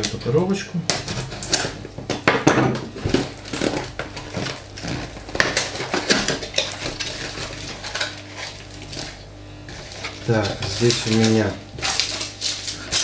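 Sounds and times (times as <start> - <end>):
packaging crackling and rustling: 3.0 - 13.0.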